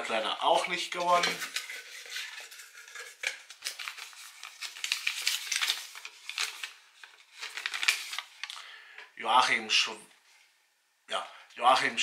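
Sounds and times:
paper rustling and crinkling: 0:00.4 - 0:08.6.

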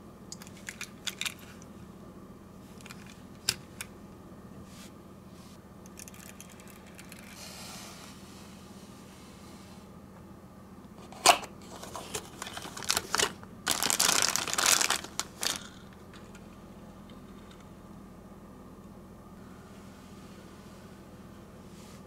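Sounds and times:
plastic bag crinkling: 0:11.6 - 0:16.2.

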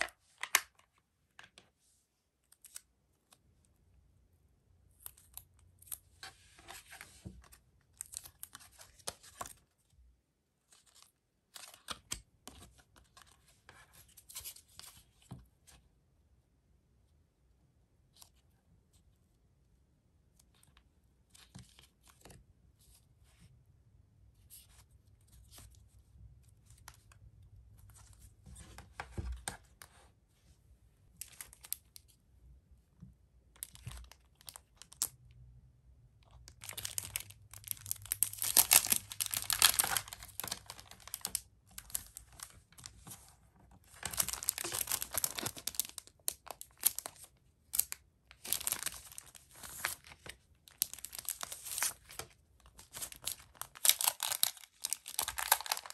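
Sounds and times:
soft taps and paper rustles: 0:27.8 - 0:30.0
plastic packet crinkling: 0:36.6 - 0:42.4, 0:43.9 - 0:55.9.

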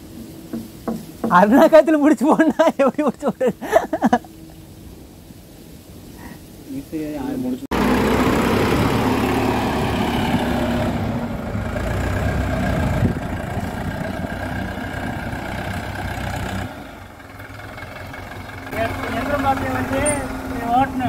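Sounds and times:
tractor diesel engine running: 0:00.0 - 0:01.9, 0:07.7 - 0:21.0.

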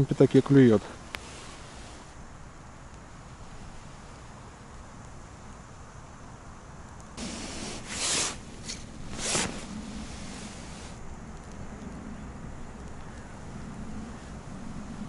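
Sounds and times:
winter jacket rustling and swishing: 0:07.2 - 0:11.0.

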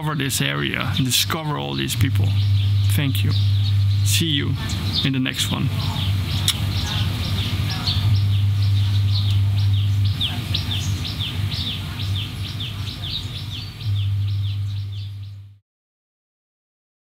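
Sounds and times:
bird chirping: 0:00.0 - 0:15.6
steady low hum: 0:00.0 - 0:15.6.

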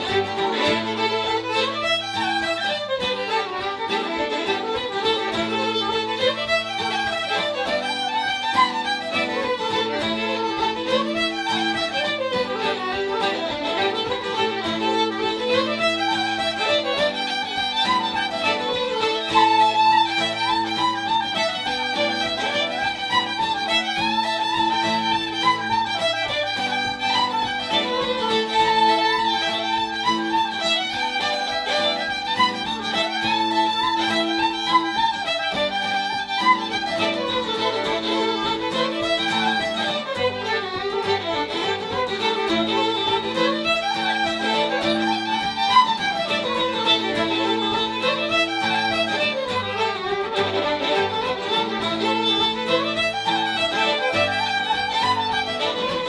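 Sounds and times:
acoustic guitar: 0:00.0 - 0:56.0
fiddles: 0:00.0 - 0:56.0
woodwind: 0:00.0 - 0:56.0.

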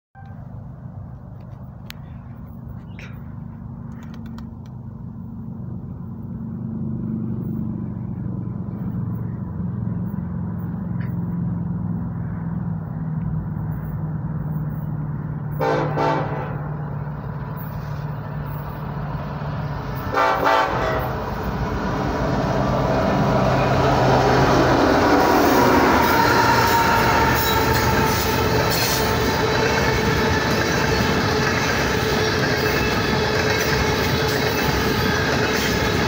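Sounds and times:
train horn blasts: 0:00.2 - 0:00.4, 0:15.5 - 0:16.8, 0:20.0 - 0:21.4, 0:24.8 - 0:36.0
locomotive engines rumbling: 0:00.2 - 0:36.0.

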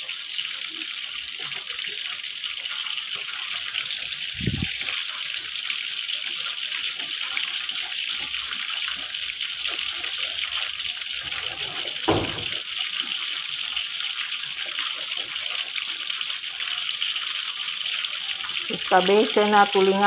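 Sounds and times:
loud knock: 0:12.1 - 0:12.6.

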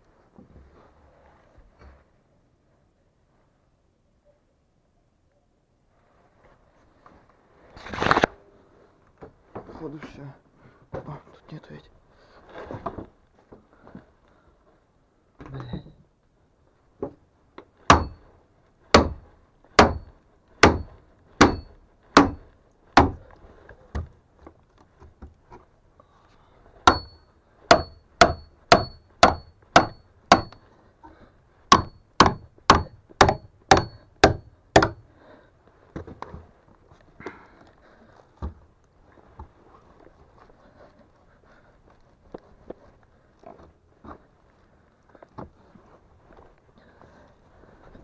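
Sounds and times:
hammer blows on metal staple: 0:26.9 - 0:30.6.

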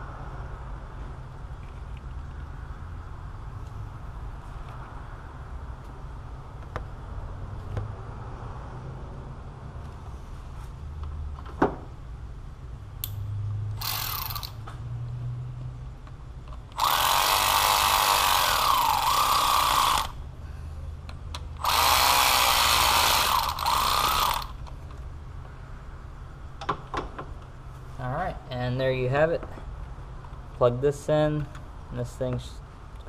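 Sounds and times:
sharp click: 0:13.0 - 0:13.2
cordless power tool driving bolts: 0:13.8 - 0:14.6, 0:16.7 - 0:20.2, 0:21.6 - 0:24.6.

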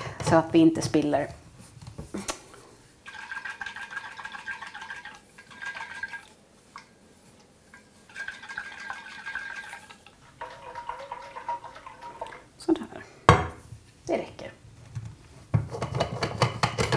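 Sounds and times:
water sloshing in a thermos: 0:07.7 - 0:12.5.

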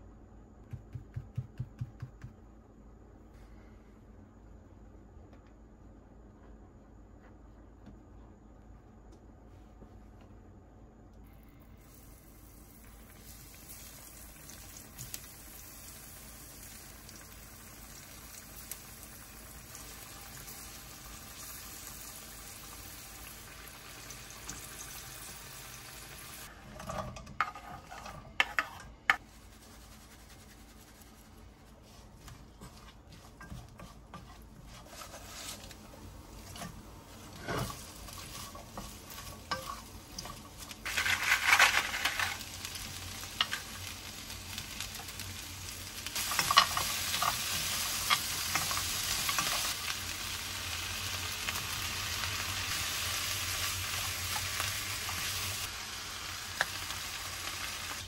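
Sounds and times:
food sizzling in a frying pan: 0:11.8 - 0:31.0, 0:34.2 - 0:58.0.

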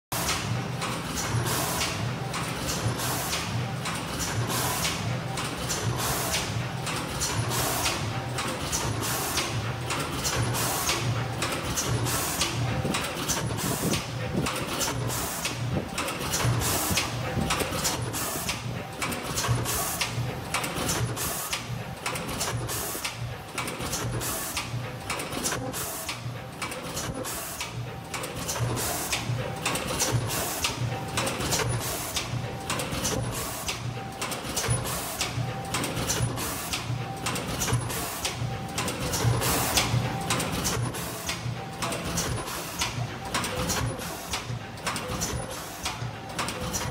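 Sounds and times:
machine clacking fast: 0:00.2 - 0:46.9.

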